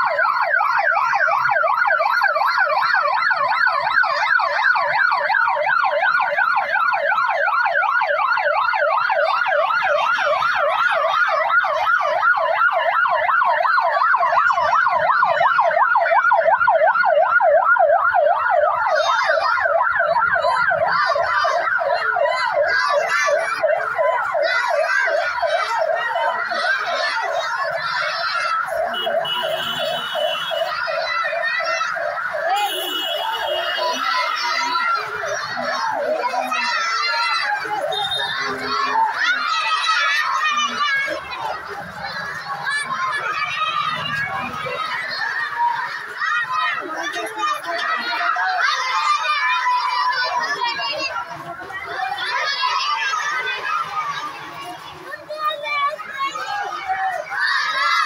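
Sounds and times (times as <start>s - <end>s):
electronic siren yelping: 0.0s - 46.2s.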